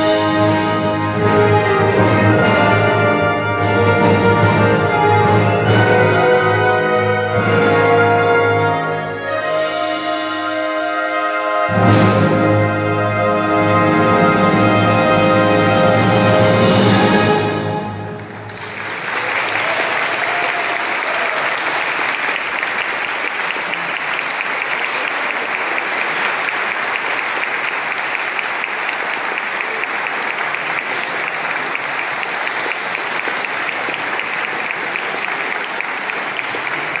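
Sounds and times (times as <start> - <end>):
audience applauding: 18.1 - 37.0.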